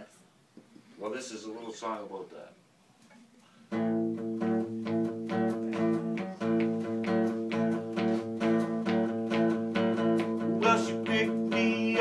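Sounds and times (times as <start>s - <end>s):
acoustic guitar strumming: 3.7s - 12.0s.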